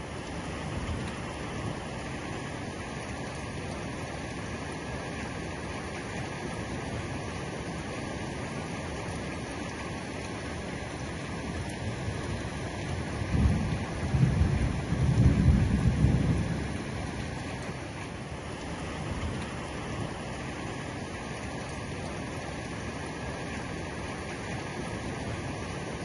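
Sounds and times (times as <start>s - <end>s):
heavy rain on roof: 0.0s - 26.0s
rolling thunder rumble: 12.9s - 17.4s.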